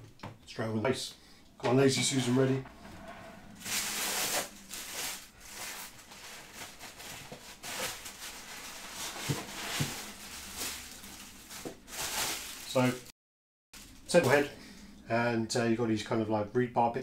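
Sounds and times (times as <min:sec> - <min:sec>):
plastic wrapping rustling: 0:03.0 - 0:13.1, 0:13.8 - 0:14.5.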